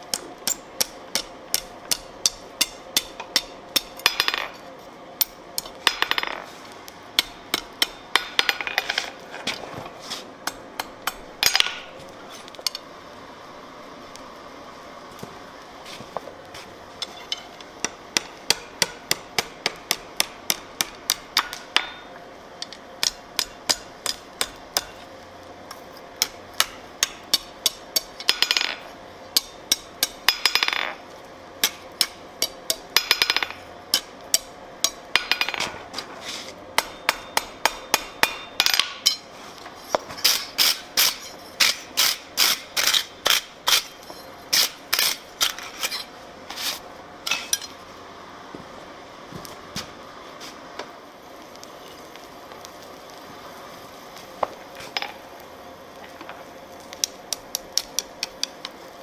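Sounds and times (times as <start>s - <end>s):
hammer striking steel on anvil: 0.1s - 4.6s, 7.2s - 9.1s, 10.4s - 11.9s, 17.0s - 25.0s, 29.4s - 31.0s, 31.6s - 35.7s, 36.8s - 39.3s.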